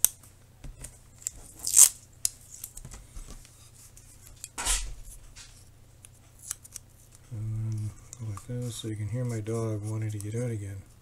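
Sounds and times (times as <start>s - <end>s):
tape ripping off a roll: 1.2s - 2.9s.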